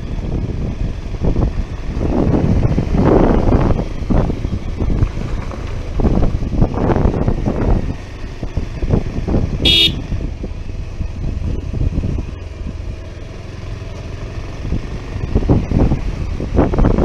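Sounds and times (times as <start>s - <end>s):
wind buffeting microphone: 0.0s - 13.0s, 14.4s - 17.0s
motorcycle riding rumble: 0.0s - 17.0s
motorcycle horn toot: 9.6s - 10.1s.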